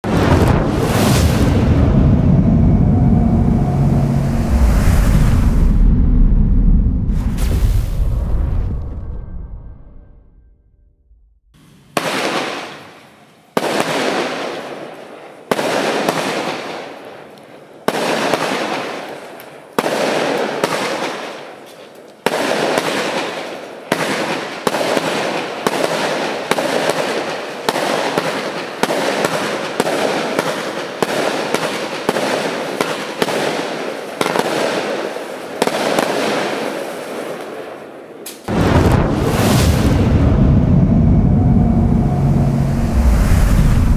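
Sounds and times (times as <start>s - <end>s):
firework shots firing: 11.6s - 14.9s, 15.5s - 17.0s, 17.9s - 19.2s, 19.8s - 21.6s, 22.2s - 37.5s.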